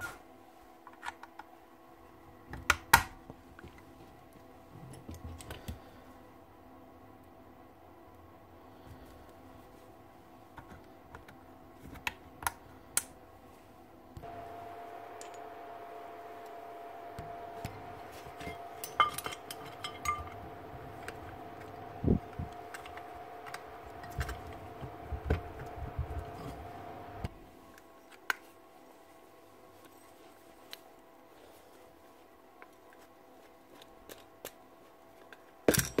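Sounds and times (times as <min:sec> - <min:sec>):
steady hum: 0:05.6 - 0:28.0
metal parts clinking and clanking: 0:18.4 - 0:20.4.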